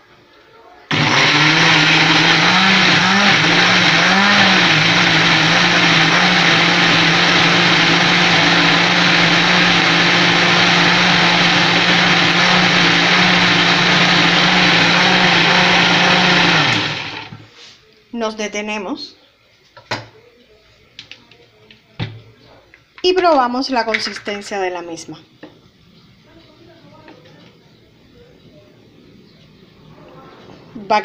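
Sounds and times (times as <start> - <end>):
blender motor running: 0.9 - 17.4.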